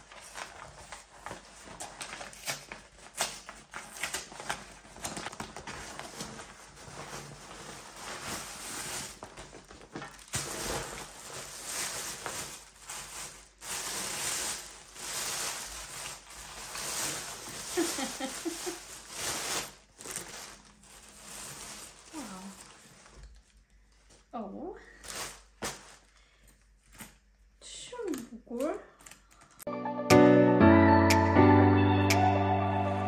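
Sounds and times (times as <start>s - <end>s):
paper rustling and crinkling: 0.0s - 24.3s, 24.9s - 26.2s.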